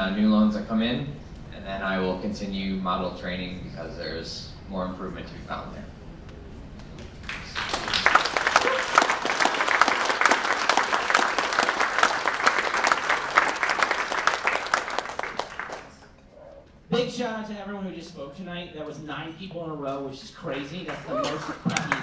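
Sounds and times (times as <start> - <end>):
audience applauding: 7.0 - 16.2, 20.9 - 22.0.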